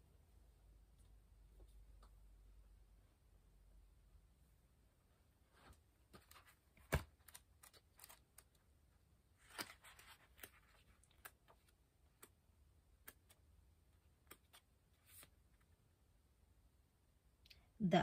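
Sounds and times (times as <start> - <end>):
faint irregular clicks: 10.2 - 14.7.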